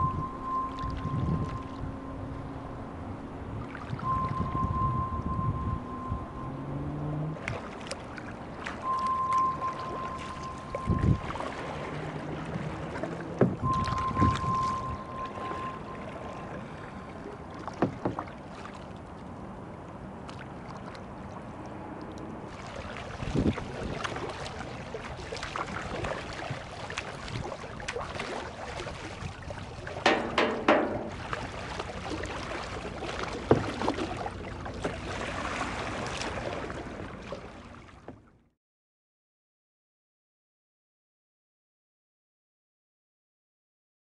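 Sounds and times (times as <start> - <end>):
paddle strokes splashing: 7.3 - 38.3
knocks: 13.4 - 13.6, 30.0 - 31.2.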